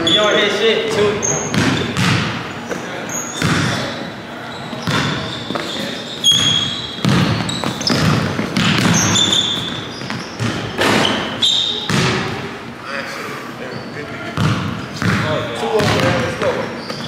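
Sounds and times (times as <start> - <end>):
sneakers squeaking on hardwood: 0.0 - 12.5, 13.7 - 17.0
basketball bouncing on hardwood: 1.5 - 2.4, 3.4 - 3.8, 4.8 - 5.6, 6.3 - 11.2, 11.9 - 12.3, 14.4 - 17.0.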